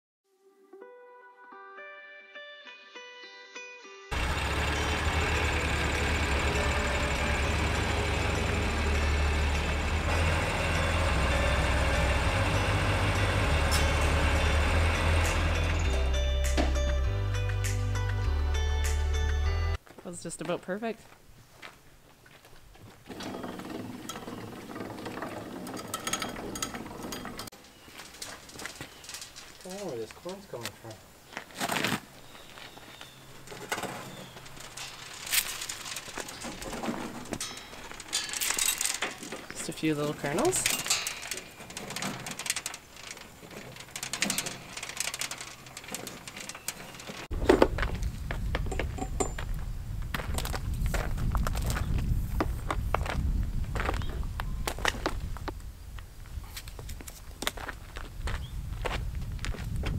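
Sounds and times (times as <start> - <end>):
footsteps crunching on gravel: 19.8 - 23.1, 27.6 - 37.8, 47.3 - 59.9
dry soybeans rustling and clicking: 33.4 - 37.2
machine clattering: 33.5 - 47.3
steady low rumble: 47.3 - 56.1.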